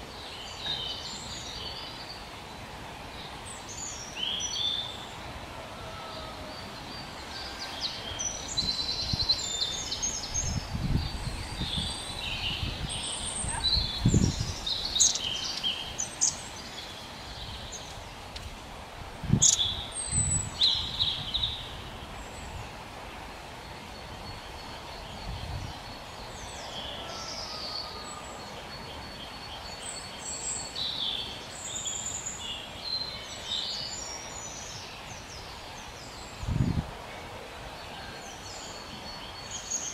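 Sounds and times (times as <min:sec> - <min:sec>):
small birds chirping: 0:06.2 - 0:18.5, 0:19.3 - 0:22.6.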